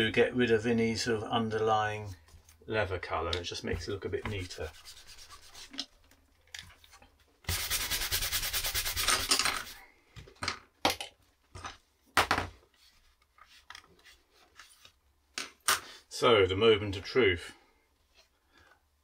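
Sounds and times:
wooden tool rubbing leather: 0:03.8 - 0:05.9, 0:07.5 - 0:09.8.

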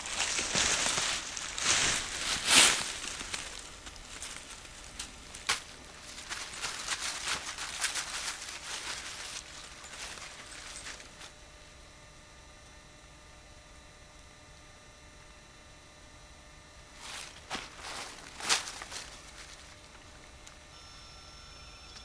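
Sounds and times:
footsteps crunching dry leaves: 0:00.0 - 0:11.4, 0:16.9 - 0:20.6.

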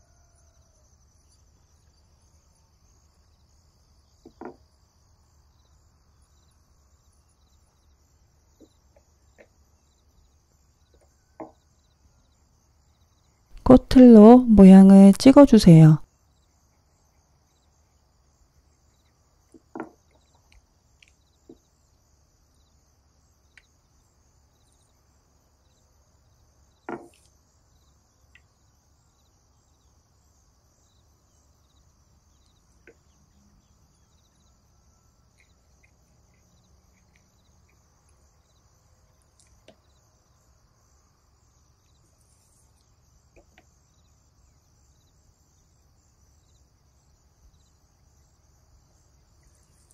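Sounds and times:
soft knocks on wooden board: 0:04.2 - 0:04.6, 0:19.6 - 0:20.0, 0:26.9 - 0:27.2.

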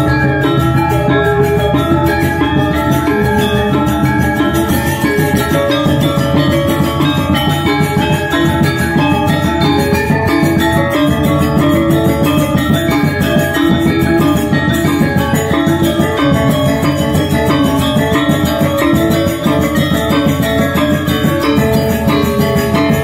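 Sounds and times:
gamelan ensemble playing: 0:00.0 - 0:23.0.

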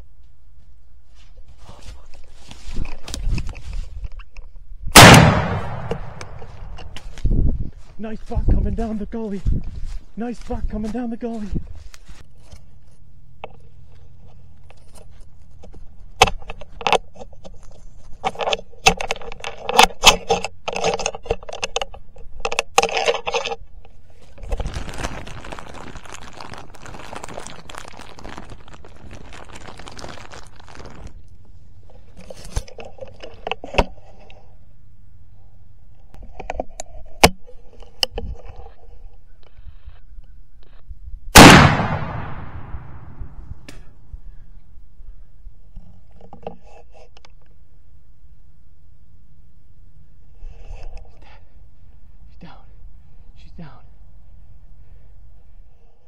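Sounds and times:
clothing and gear rustling: 0:00.6 - 0:04.0.

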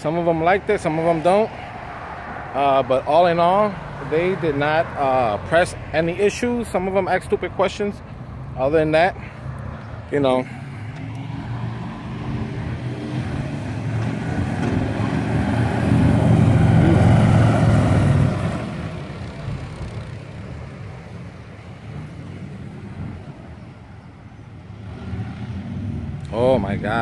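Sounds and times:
motor vehicle driving past: 0:09.2 - 0:21.2, 0:24.6 - 0:27.0.

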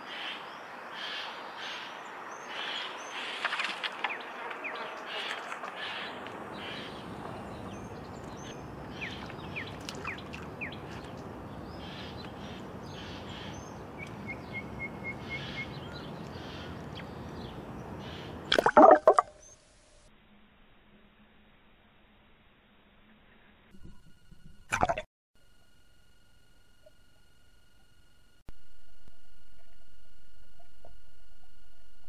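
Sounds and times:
small birds chirping: 0:00.0 - 0:18.5
splash into water: 0:18.5 - 0:19.3.

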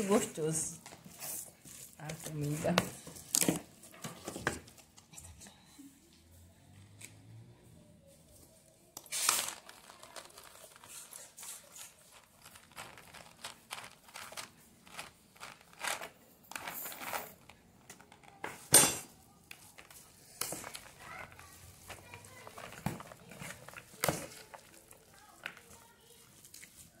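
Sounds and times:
food rustling in a bowl: 0:00.0 - 0:05.2, 0:09.1 - 0:17.6, 0:19.3 - 0:27.0.

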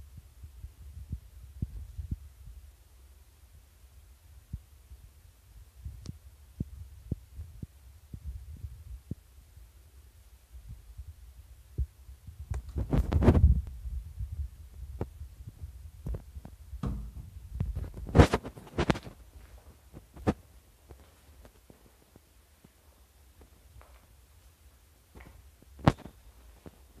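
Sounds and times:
rustling and scraping bursts: 0:17.2 - 0:22.0.

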